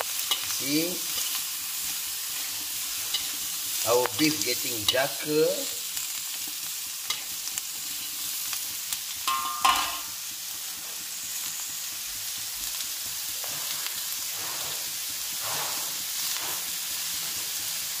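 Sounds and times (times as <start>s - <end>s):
food sizzling in a wok: 0.0s - 18.0s
metal spatula clicking on pan: 9.2s - 10.0s
ringing clatter of spatula: 9.2s - 10.1s.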